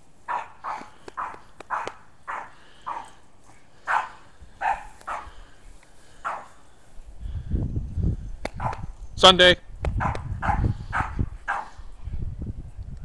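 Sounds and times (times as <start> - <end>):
small dog barking: 0.3 - 3.1, 3.9 - 5.4, 6.2 - 6.6, 8.6 - 8.9, 10.0 - 11.8.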